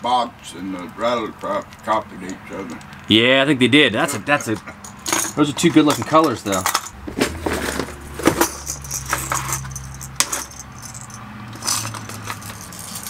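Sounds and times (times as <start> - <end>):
plastic fishing lures clattering: 5.0 - 13.0.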